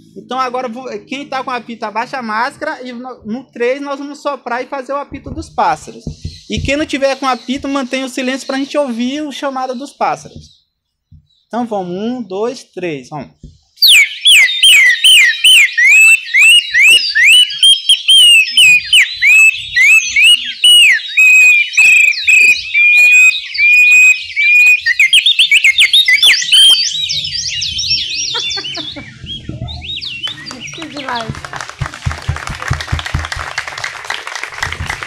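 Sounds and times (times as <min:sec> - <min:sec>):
bird-call whistles warbling: 0:06.0 - 0:08.8, 0:13.8 - 0:31.3.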